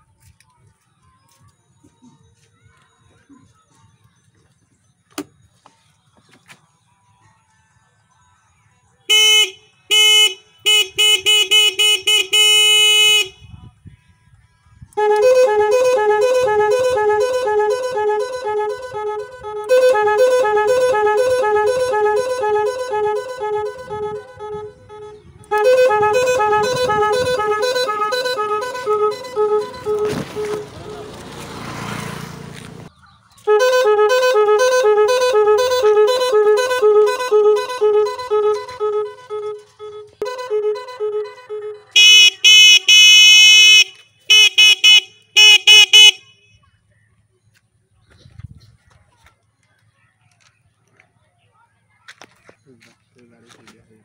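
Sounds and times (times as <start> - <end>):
electronic horn toots: 9.1 - 13.4, 15.0 - 31.1, 33.5 - 46.4
two-note electronic melody: 15.0 - 31.1, 33.6 - 46.2.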